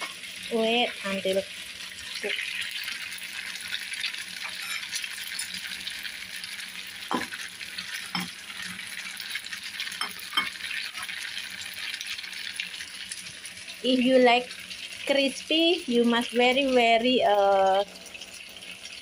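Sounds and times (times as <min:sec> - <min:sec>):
fritters sizzling in oil: 0:00.0 - 0:19.0.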